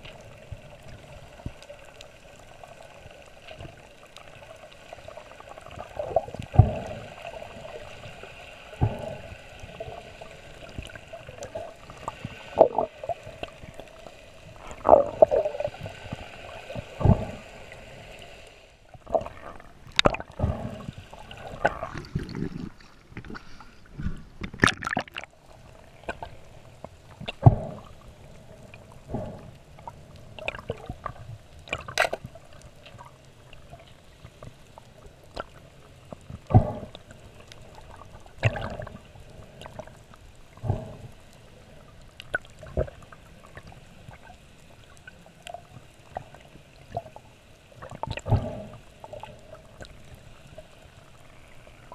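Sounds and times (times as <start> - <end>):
muffled underwater water hiss: 0.0 - 24.5, 25.3 - 51.9
underwater clicks and knocks: 8.8 - 9.3, 14.6 - 15.5, 17.0 - 17.4, 19.0 - 25.3, 26.0 - 28.0, 29.0 - 32.4, 36.1 - 37.1, 47.8 - 49.9
short gurgles: 19.1 - 23.4.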